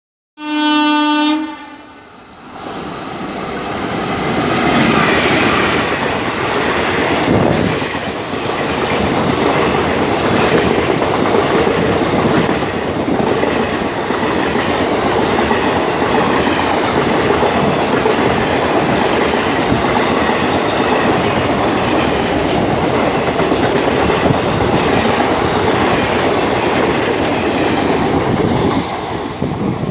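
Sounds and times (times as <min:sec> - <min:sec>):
train horn: 0:00.4 - 0:02.0
train wheels roaring on rails: 0:00.4 - 0:29.9.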